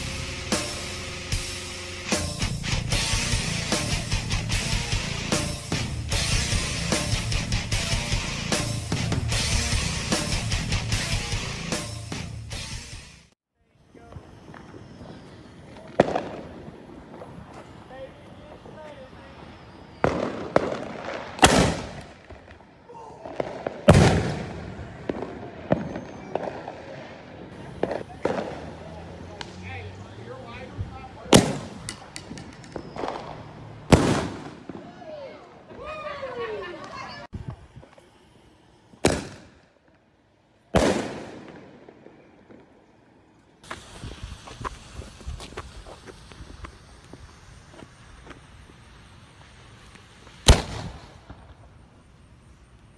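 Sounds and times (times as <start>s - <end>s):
small firework cracks: 13.8s - 30.0s, 30.6s - 52.9s
firework bangs echoing: 14.0s - 38.2s, 38.9s - 40.0s, 40.6s - 52.1s
loud aerial firework bang: 15.9s - 17.7s, 20.0s - 22.6s, 23.2s - 26.9s, 31.3s - 34.9s, 39.0s - 39.6s, 40.8s - 42.8s, 50.4s - 51.6s
fuse hissing and sputtering: 43.6s - 51.2s.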